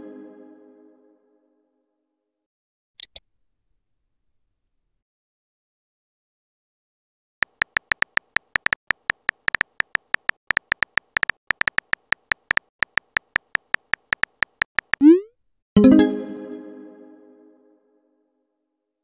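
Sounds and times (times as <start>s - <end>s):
clicking keyboard beeps: 7.6s - 15.3s.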